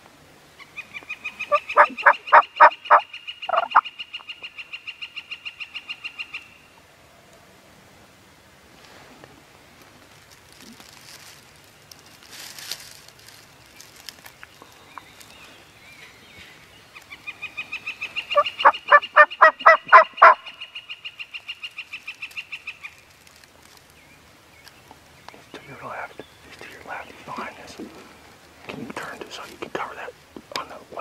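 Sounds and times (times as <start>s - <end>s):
turkey gobbling: 1.4s - 4.3s, 17.7s - 20.7s.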